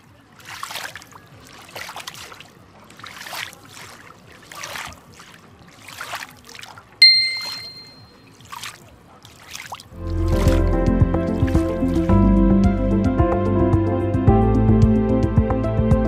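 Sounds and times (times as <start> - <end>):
water swishing splashes: 0.0 - 12.3
bright chime: 7.0 - 8.1.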